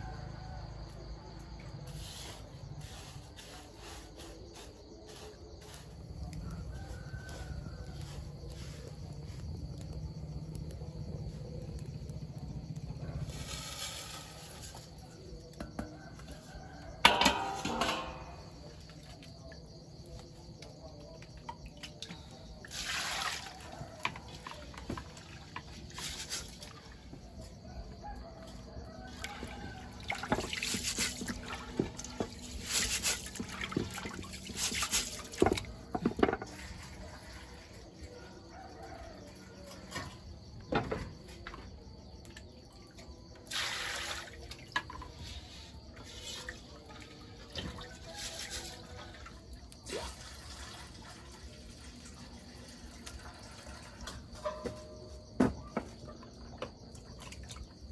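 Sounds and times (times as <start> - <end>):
water splashing and dripping: 21.4 - 27.0, 29.1 - 35.8, 43.4 - 45.2, 46.0 - 54.1.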